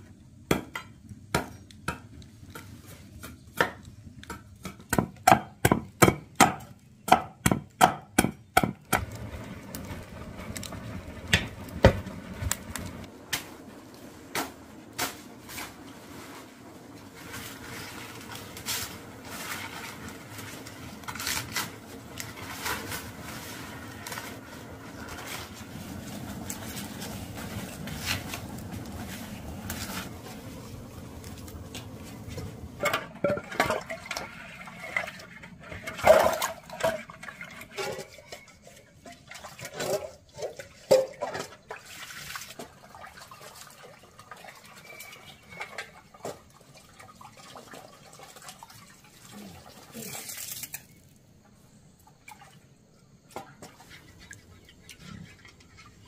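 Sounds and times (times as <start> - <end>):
water sloshing in a metal pot: 31.3 - 51.2, 51.8 - 56.0.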